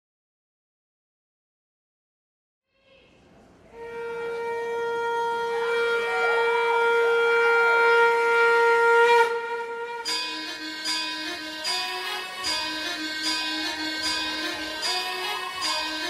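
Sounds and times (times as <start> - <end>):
recorded medley music: 9.8 - 16.0.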